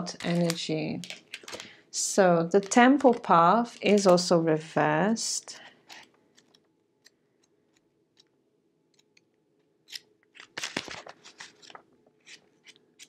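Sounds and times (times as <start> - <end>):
cards clicking and snapping: 9.9 - 13.0.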